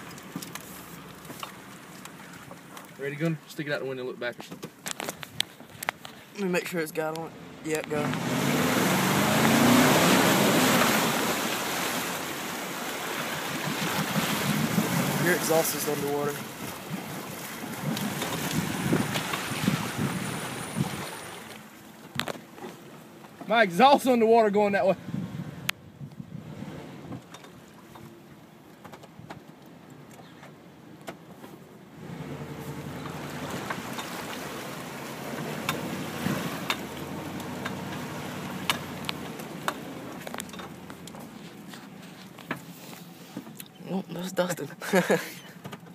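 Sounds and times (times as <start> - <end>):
water splashing against truck: 0.0 - 25.4, 26.5 - 45.9
engine revving: 7.3 - 12.6, 32.0 - 40.9.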